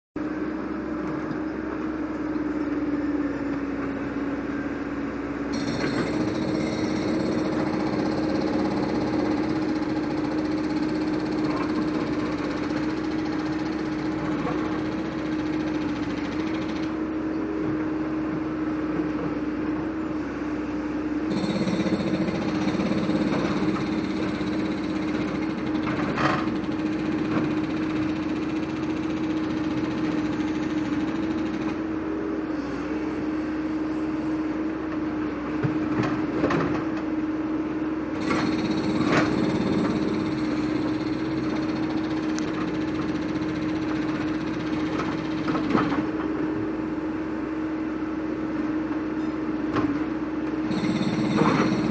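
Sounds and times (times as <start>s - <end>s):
diesel engine running: 0.2s - 17.8s, 37.6s - 51.9s
hydraulic whine: 5.5s - 17.5s, 21.3s - 34.3s, 38.2s - 46.6s, 50.6s - 51.9s.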